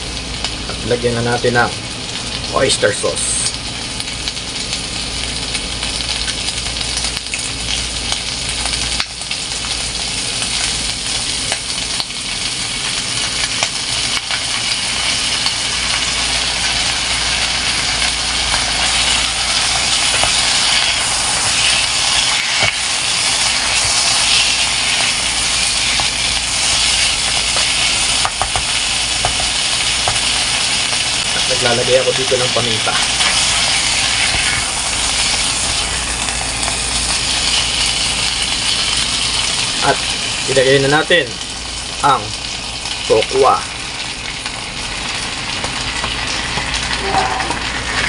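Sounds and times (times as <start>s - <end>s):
meat sizzling in oil: 0.0s - 48.0s
spatula stirring in pan: 18.0s - 31.0s.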